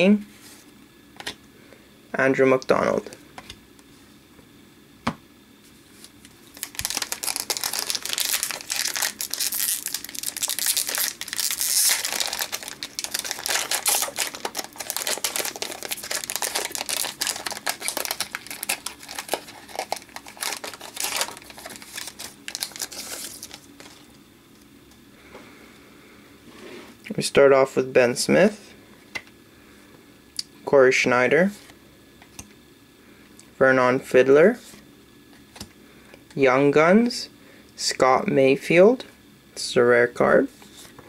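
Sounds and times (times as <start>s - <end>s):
foil wrapper crinkling: 6.2s - 24.2s.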